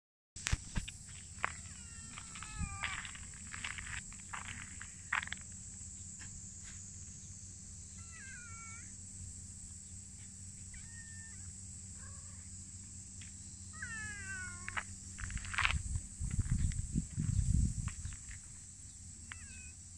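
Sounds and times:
cats meowing: 0:01.4 - 0:03.9, 0:07.9 - 0:09.0, 0:10.7 - 0:12.5, 0:13.8 - 0:14.9, 0:19.2 - 0:19.8.

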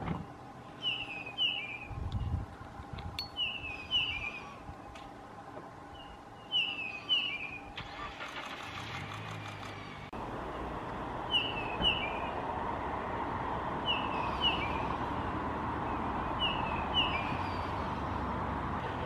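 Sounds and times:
vehicle engine noise: 0:00.0 - 0:19.0
bird whistled calls: 0:00.8 - 0:02.0, 0:03.4 - 0:04.6, 0:06.0 - 0:07.6, 0:11.3 - 0:12.3, 0:16.4 - 0:17.8.

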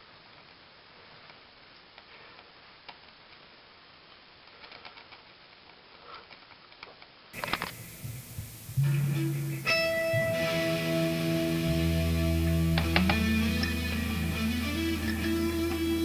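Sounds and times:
faint steady hiss: 0:00.0 - 0:16.0
small clicks and ticks: 0:00.3 - 0:07.8
music: 0:07.4 - 0:16.0.

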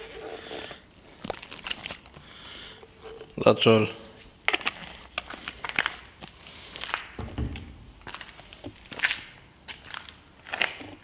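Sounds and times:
dull thump: 0:07.2 - 0:08.2.

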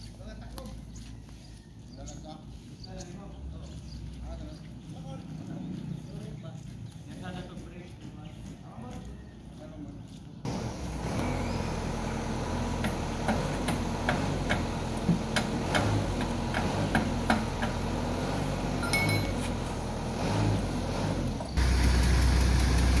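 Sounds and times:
metal tools clinking: 0:18.8 - 0:19.6.

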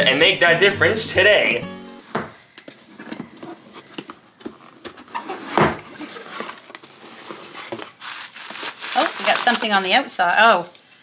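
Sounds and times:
cardboard box rustling and scuffing: 0:02.7 - 0:08.6.

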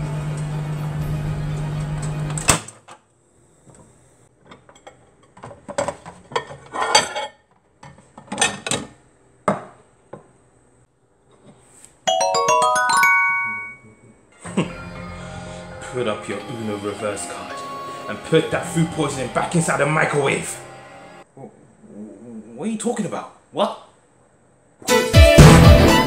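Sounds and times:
microwave oven humming: 0:00.0 - 0:02.6
xylophone-like mallet jingle: 0:12.1 - 0:14.0.

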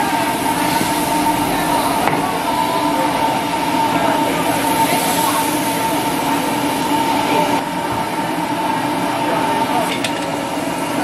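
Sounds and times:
mechanical hum: 0:00.0 - 0:11.0
meat sizzling in a wok: 0:03.4 - 0:08.2.

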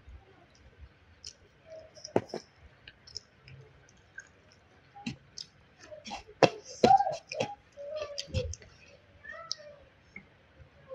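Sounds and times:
mouth clicks and smacks: 0:02.0 - 0:02.4.

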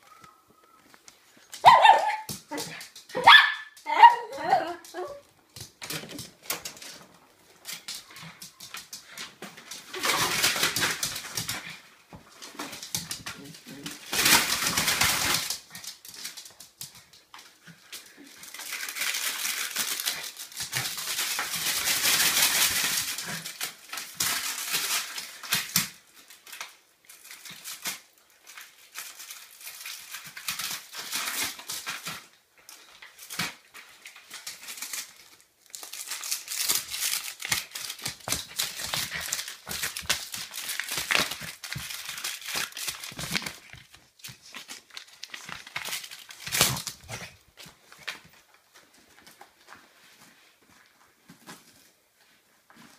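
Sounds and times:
dog claws clicking on floor: 0:04.8 - 0:49.8
paper tearing and crinkling: 0:09.6 - 0:11.8, 0:12.4 - 0:16.5, 0:18.2 - 0:32.3, 0:33.0 - 0:48.2.

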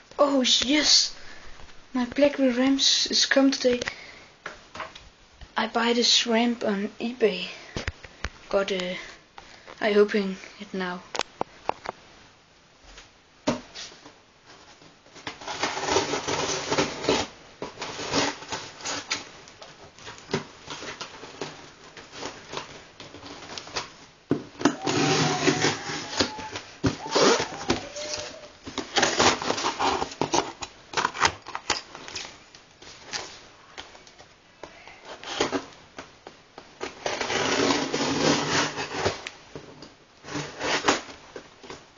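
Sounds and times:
packing tape ripping: 0:15.3 - 0:19.3, 0:24.6 - 0:32.4, 0:36.8 - 0:39.4, 0:40.3 - 0:41.1
tape squeal: 0:24.7 - 0:28.6.

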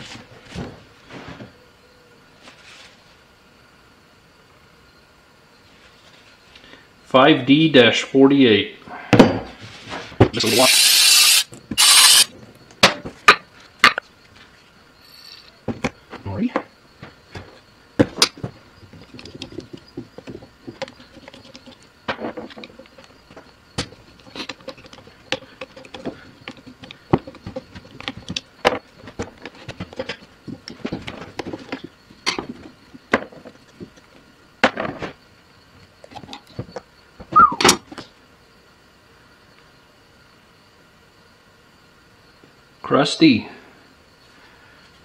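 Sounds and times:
metal parts clinking and scraping: 0:10.4 - 0:12.3, 0:15.0 - 0:15.5.

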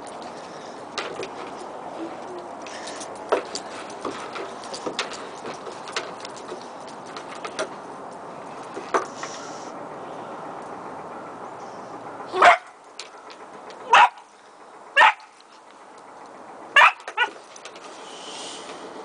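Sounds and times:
puppy barking: 0:12.3 - 0:12.8, 0:13.8 - 0:14.2, 0:15.0 - 0:15.3, 0:16.8 - 0:17.4.

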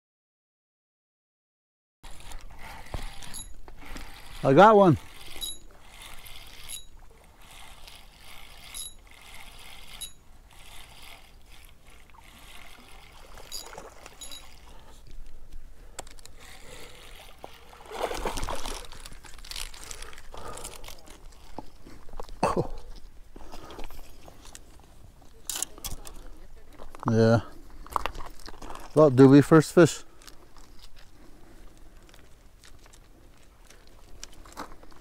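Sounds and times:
fishing reel whirring and clicking: 0:02.0 - 0:22.3
fish splashing: 0:05.1 - 0:14.9, 0:16.4 - 0:21.6.

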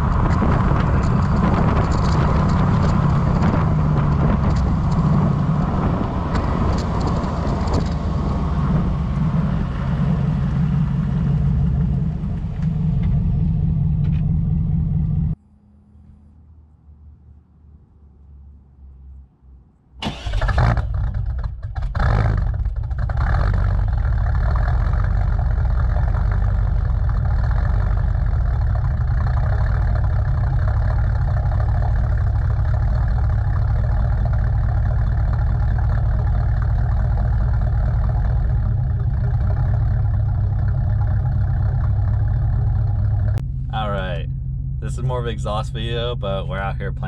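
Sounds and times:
engine starting and idling: 0:20.0 - 0:46.6.

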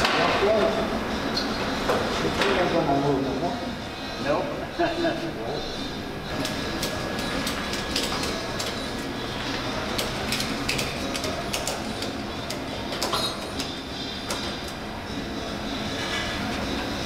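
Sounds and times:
workshop background hum: 0:00.0 - 0:17.0.

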